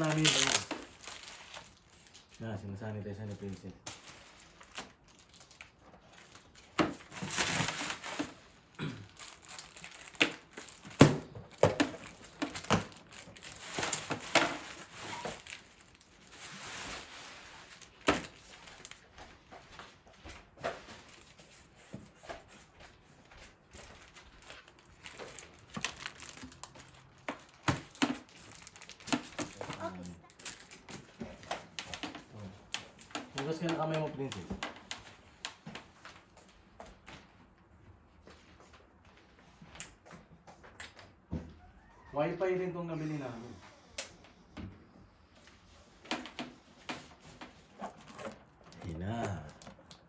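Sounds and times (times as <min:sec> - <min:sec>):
bubble wrap crinkling: 0:00.0 - 0:19.8, 0:20.8 - 0:36.3, 0:46.0 - 0:50.0.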